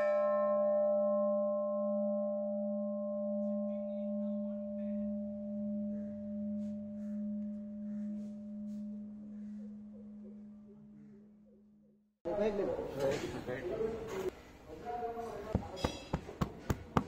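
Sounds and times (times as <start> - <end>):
large bronze bell ringing: 0.0 - 9.8.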